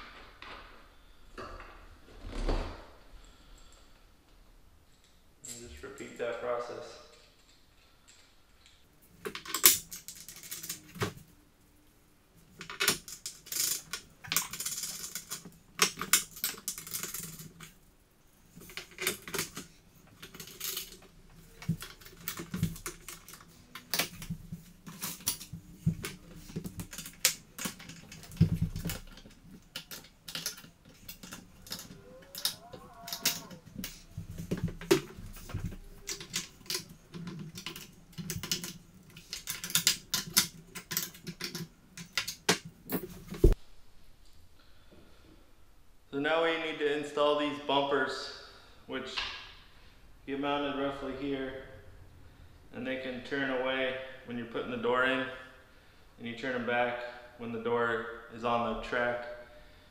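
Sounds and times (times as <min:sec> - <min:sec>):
metal hardware clicking and clinking: 0:07.0 - 0:11.2, 0:12.6 - 0:17.8, 0:18.5 - 0:43.6.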